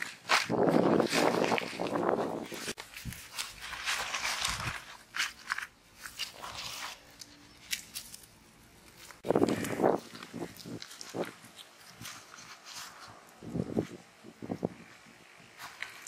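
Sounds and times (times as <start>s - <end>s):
leaf and charred fish skin crackling: 0.0s - 16.0s.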